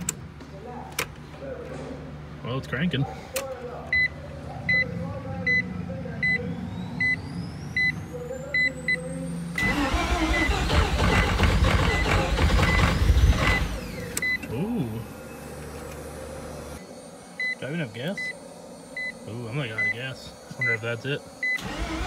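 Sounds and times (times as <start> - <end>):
starter cranking engine: 9.6 - 14.3, 21.4 - 22.0.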